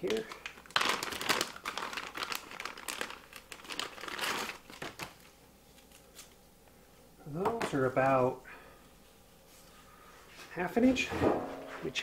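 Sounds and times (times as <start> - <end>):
plastic bag crinkling: 0.0 - 6.4.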